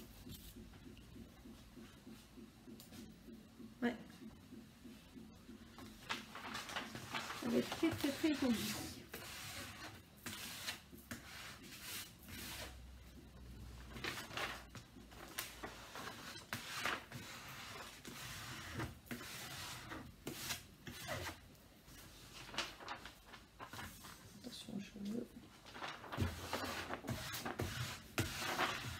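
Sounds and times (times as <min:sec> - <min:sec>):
plastic film rustling and crinkling: 0:06.0 - 0:09.8, 0:13.9 - 0:18.1, 0:22.0 - 0:28.9.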